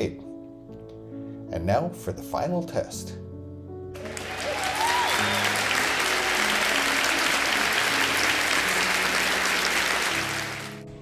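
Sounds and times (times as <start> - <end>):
background music: 0.0 - 11.0
crowd applause: 4.0 - 11.0.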